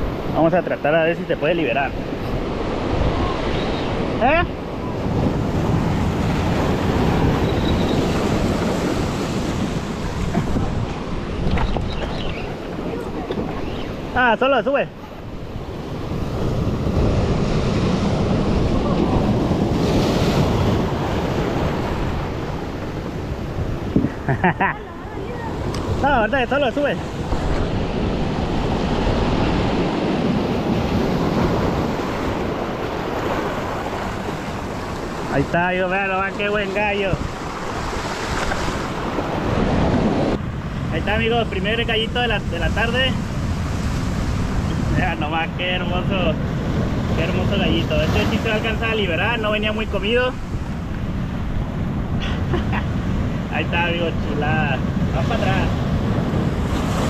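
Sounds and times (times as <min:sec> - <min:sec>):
surf breaking on rocks: 0:01.5 - 0:24.2, 0:53.4 - 0:57.0
wind buffeting microphone: 0:01.8 - 0:14.2, 0:15.0 - 0:35.5, 0:36.3 - 0:57.0.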